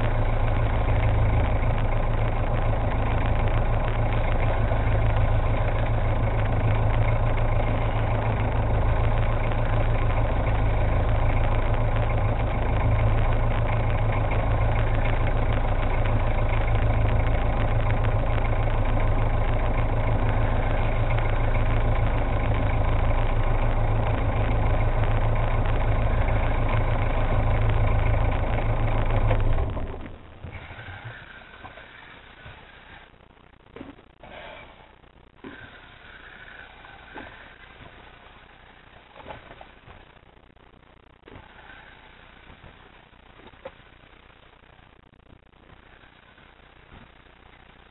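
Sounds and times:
boat engine idling: 0.0s - 34.2s.

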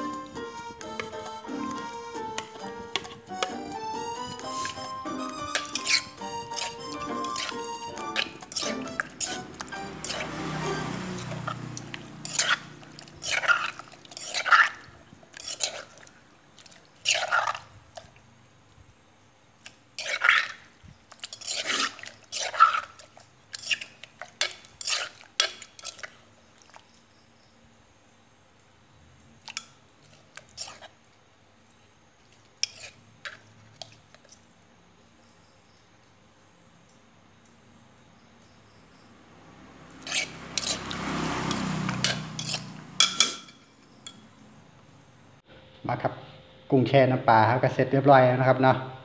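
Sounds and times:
spoon stirring wet food: 0.0s - 18.4s, 19.6s - 27.0s, 29.4s - 34.5s, 39.8s - 44.9s.

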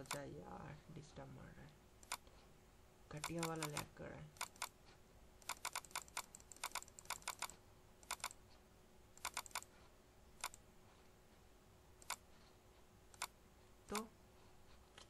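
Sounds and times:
computer keyboard keys clicking: 3.2s - 4.7s, 5.4s - 8.4s, 9.2s - 9.7s, 10.4s - 10.6s, 12.0s - 12.2s.

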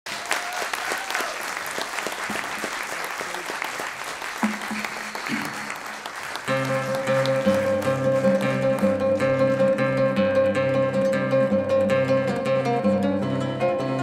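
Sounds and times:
audience applauding: 0.0s - 10.0s
acoustic guitar: 6.5s - 14.0s.

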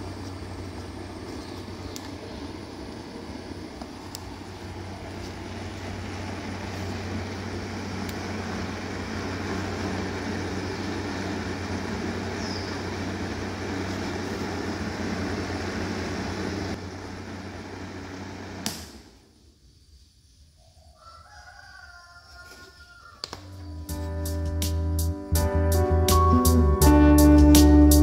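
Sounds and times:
small motor fan buzzing hum: 0.0s - 19.3s.

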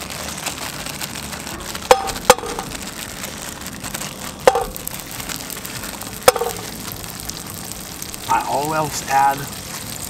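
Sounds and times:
butter spitting in hot oil: 0.0s - 10.0s
steady oil hiss: 1.2s - 10.0s.

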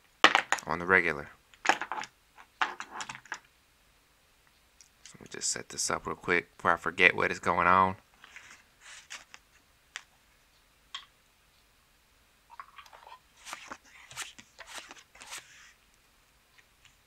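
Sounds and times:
playing cards sliding on felt: 8.2s - 9.4s, 13.4s - 15.8s.

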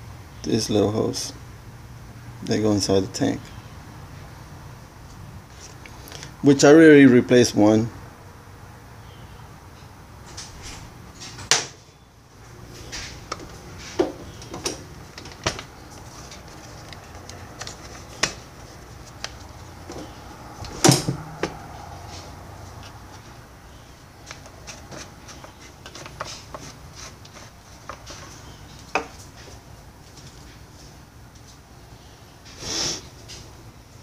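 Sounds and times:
hands handling plastic parts: 12.7s - 30.6s.

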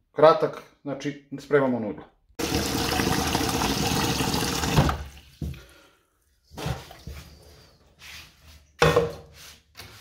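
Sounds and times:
tap water pouring into pot: 2.4s - 5.6s.

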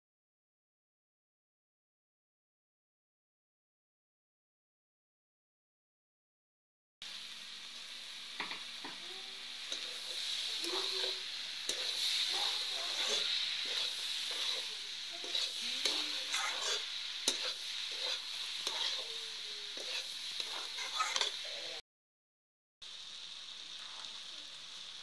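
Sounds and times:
vegetables sizzling in a pan: 7.0s - 21.8s, 22.8s - 25.0s
metal spatula scraping pan: 9.6s - 21.6s.

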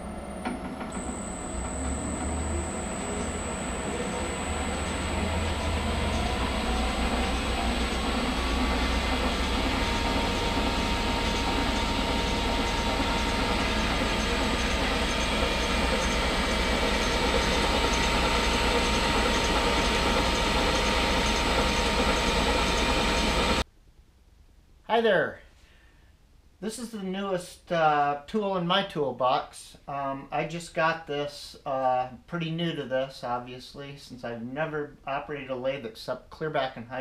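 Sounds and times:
metal lathe running with whine: 0.0s - 23.6s.

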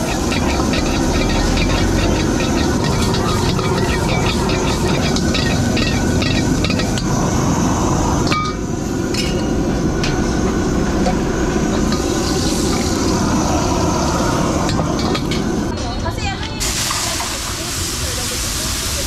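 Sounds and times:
food sizzling: 0.0s - 8.3s, 11.3s - 15.4s, 16.6s - 19.0s
gas burner rushing: 0.0s - 19.0s.

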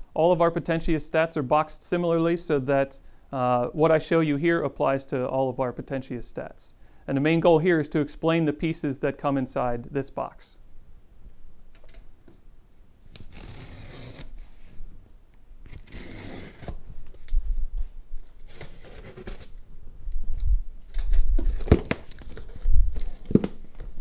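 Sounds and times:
utility knife slicing cardboard: 13.1s - 14.8s, 15.7s - 16.8s, 18.4s - 19.5s.

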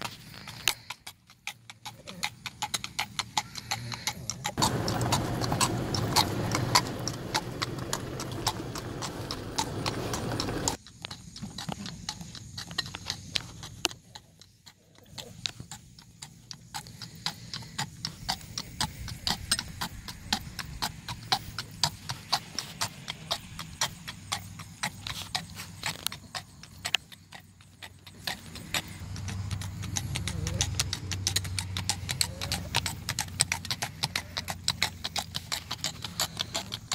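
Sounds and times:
hooves clip-clopping on asphalt: 0.0s - 36.9s
low steady rumble: 4.6s - 10.8s.

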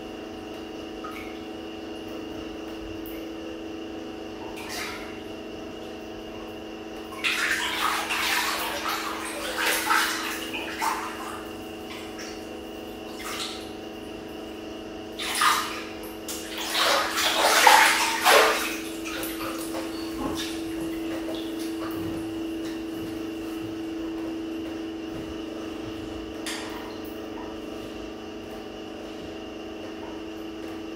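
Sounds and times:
steady low hum: 0.0s - 30.9s
bath water splashing: 4.6s - 5.2s, 7.1s - 14.0s, 15.1s - 24.5s.

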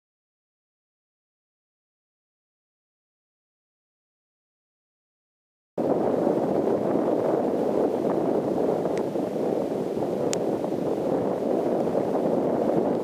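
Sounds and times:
muffled wind buffeting: 5.8s - 13.0s.

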